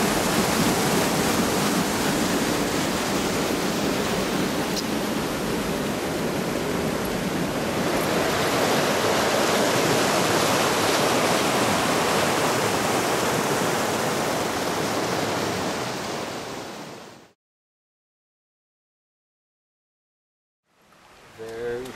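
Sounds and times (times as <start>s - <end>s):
waterfall rushing over rocks: 0.0s - 17.3s.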